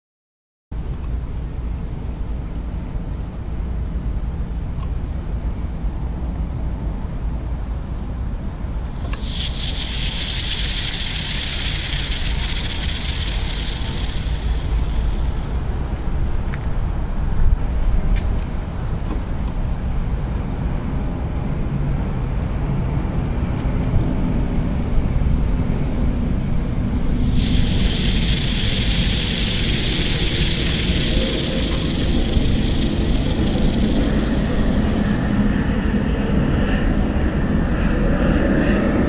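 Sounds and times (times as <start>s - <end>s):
wind rumbling on microphone: 8.4s - 20.2s, 23.8s - 39.0s
metal fizzing on water: 8.6s - 16.1s, 27.0s - 35.9s.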